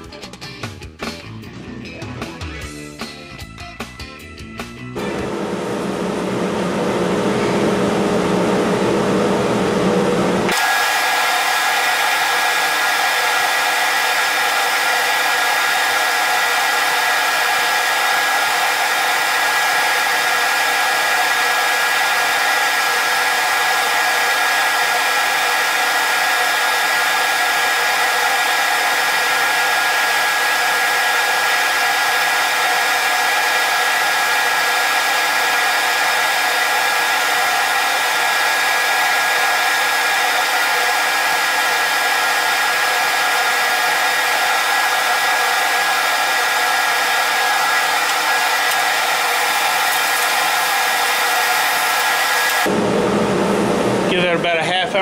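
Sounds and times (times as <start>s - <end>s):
machine motor whirring: 5.0s - 30.6s, 43.7s - 52.9s.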